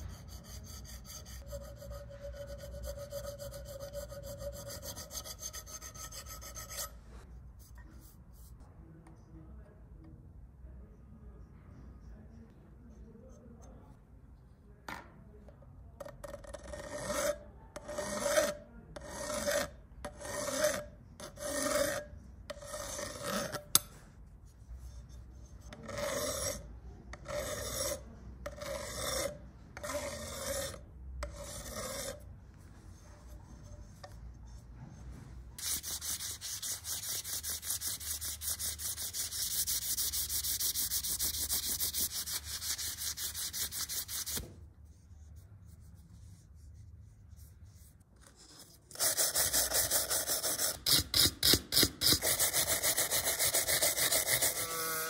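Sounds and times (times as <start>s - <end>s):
file scraping brass rod: 0.0s - 7.1s, 16.4s - 24.0s, 24.6s - 32.3s, 35.6s - 44.4s, 48.3s - 55.0s.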